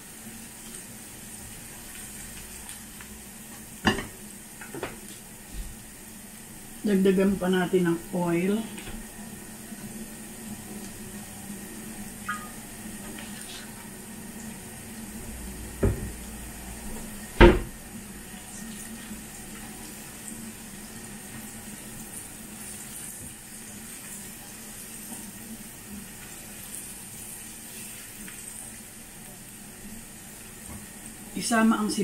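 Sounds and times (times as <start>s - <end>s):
garlic sizzling in a frying pan: 0.0s - 32.0s.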